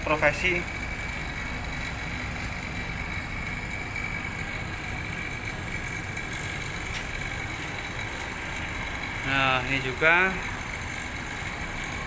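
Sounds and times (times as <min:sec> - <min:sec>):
vacuum pump droning with whine: 0:00.0 - 0:12.0.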